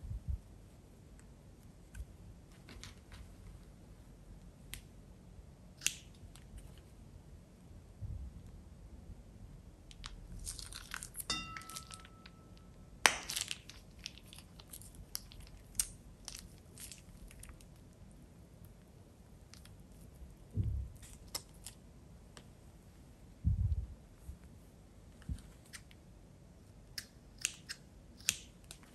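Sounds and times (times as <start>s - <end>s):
low thump: 20.6s - 20.9s.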